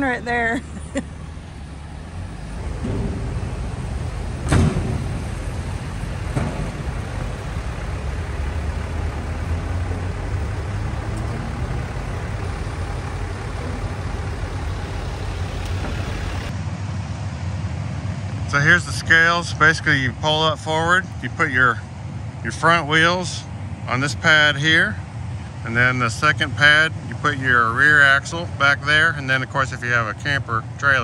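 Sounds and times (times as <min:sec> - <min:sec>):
pickup truck engine rumbling: 0:00.0 - 0:31.0
sudden thump: 0:02.5 - 0:09.3.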